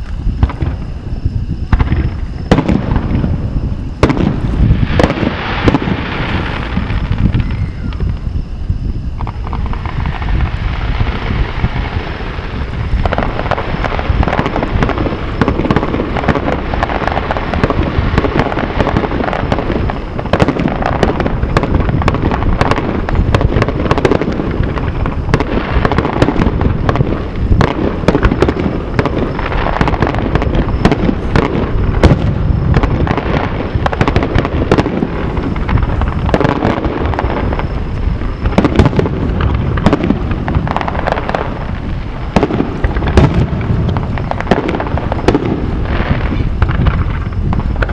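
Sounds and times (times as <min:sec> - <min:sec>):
firework shells bursting: 0:01.7 - 0:08.3, 0:09.2 - 0:47.9.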